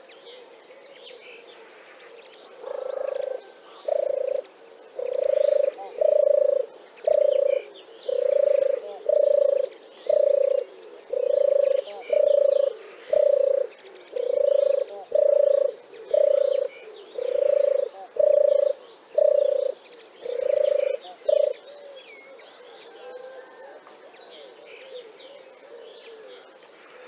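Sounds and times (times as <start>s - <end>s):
small birds chirping faintly: 0.0s - 27.0s
turtle dove cooing: 0.0s - 27.0s.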